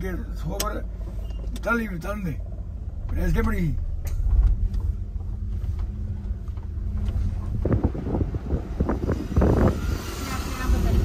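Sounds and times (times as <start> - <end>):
car engine and road rumble: 0.0 - 11.0
steady low hum: 0.0 - 11.0
muffled knocks and rustles: 3.0 - 9.1
wind buffeting microphone: 4.2 - 11.0.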